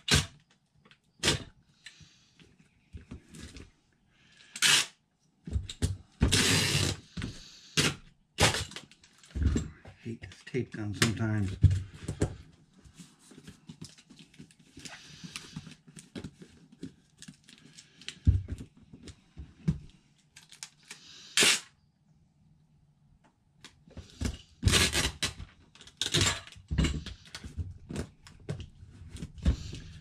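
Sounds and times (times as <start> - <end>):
packing tape ripping screech: 0.0 - 0.4, 1.2 - 1.5, 4.4 - 5.0, 6.2 - 9.0, 20.4 - 21.8, 24.6 - 26.6.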